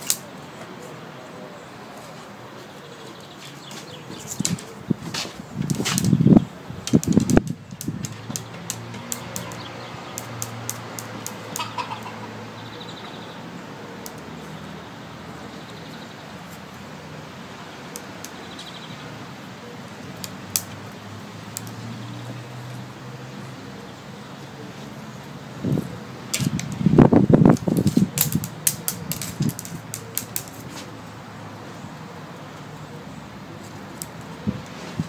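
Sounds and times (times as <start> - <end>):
distant bird chirps: 7.7 - 17.0, 17.6 - 26.1.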